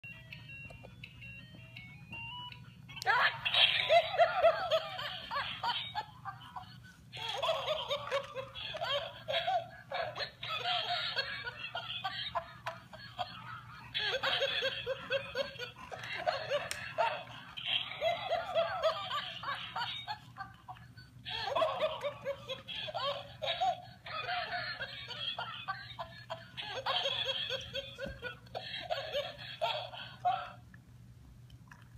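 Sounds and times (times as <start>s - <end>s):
toy monkey laughter: 3.0s - 30.6s.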